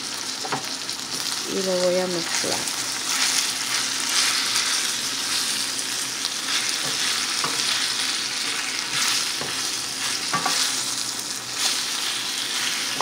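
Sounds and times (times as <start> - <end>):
food sizzling in a skillet: 0.0 - 13.0
spatula scraping a pan: 6.5 - 10.8.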